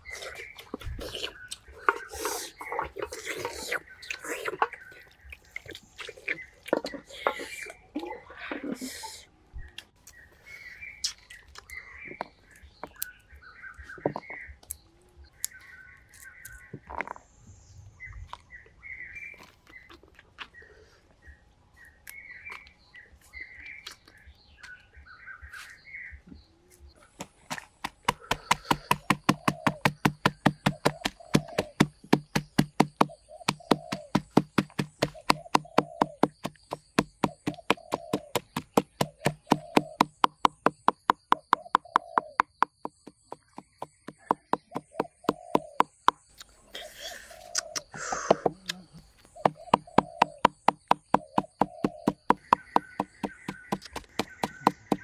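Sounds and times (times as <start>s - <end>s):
birds calling: 0.0s - 55.0s
knife chopping on board: 27.5s - 46.2s, 49.4s - 55.0s
scattered knocks: 27.8s - 46.2s, 49.4s - 55.0s.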